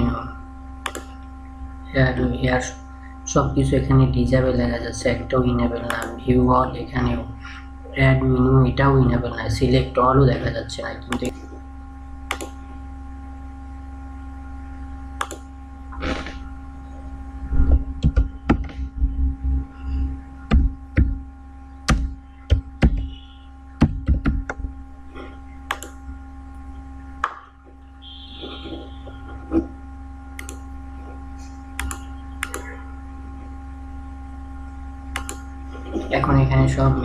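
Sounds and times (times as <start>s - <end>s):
steady electrical hum: 0.0s - 37.0s
mouse clicks: 0.8s - 1.1s, 25.7s - 26.0s, 35.1s - 35.5s.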